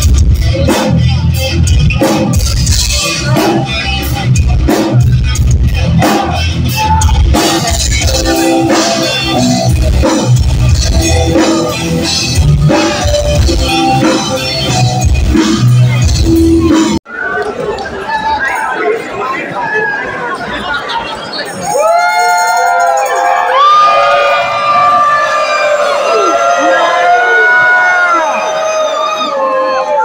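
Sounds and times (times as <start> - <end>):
live metal band playing: 0.0 - 17.0.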